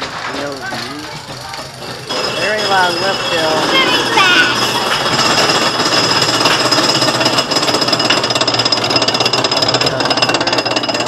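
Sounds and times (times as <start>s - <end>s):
roller coaster lift rattle: 0.0s - 11.0s.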